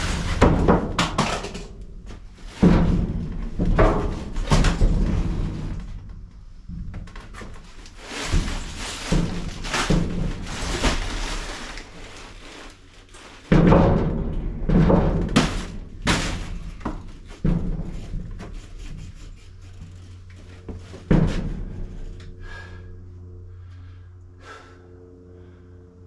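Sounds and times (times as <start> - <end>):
wooden boards banging in metal container: 0.0 - 12.4, 13.3 - 19.3, 20.4 - 22.0.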